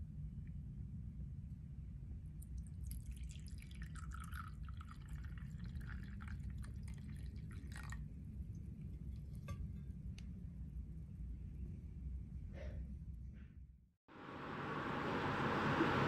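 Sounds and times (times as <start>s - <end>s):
drink pouring into cup: 2.8s - 8.0s.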